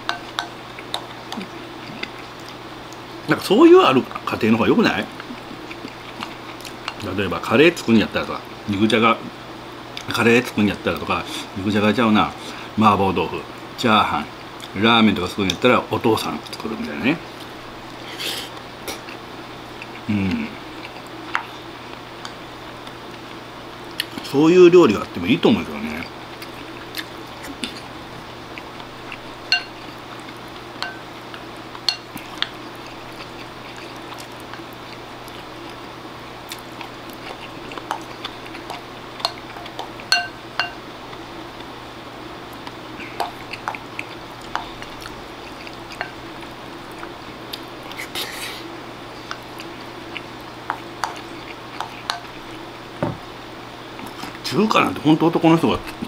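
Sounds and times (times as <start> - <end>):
steady low hum: 0.0 - 56.0
wooden spoon clinking ceramic bowl: 29.5 - 29.8, 40.1 - 40.8.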